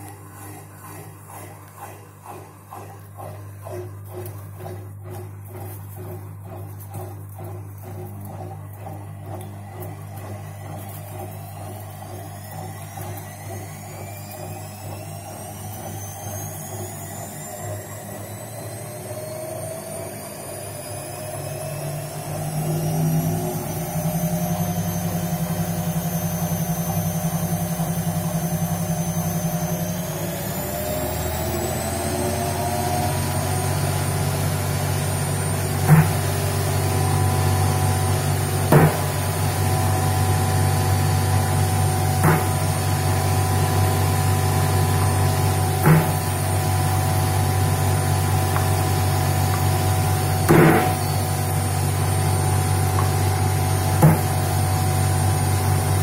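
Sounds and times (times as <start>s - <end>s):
washing machine motor whine: 0.0s - 56.0s
sharp knocks: 38.7s - 39.1s.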